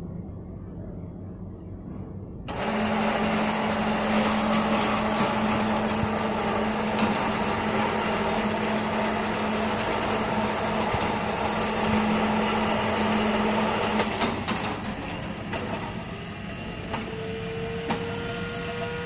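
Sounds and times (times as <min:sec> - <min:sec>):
rattling mechanical noise: 0:01.5 - 0:19.0
electric motor humming: 0:02.5 - 0:14.0.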